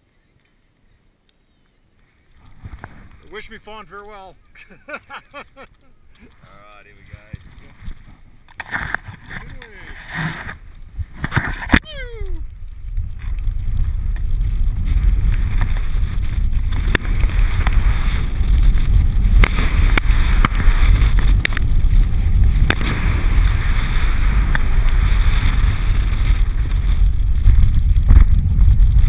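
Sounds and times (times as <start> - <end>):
wind buffeting microphone: 6.0 - 29.0
snow tube sliding on snow: 6.7 - 29.0.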